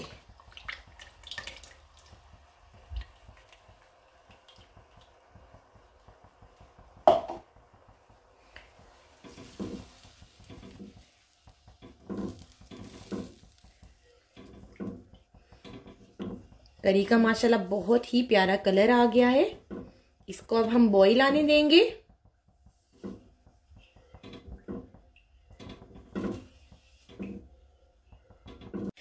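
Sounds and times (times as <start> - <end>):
spatula swishing and scraping liquid: 8.4 - 17.1.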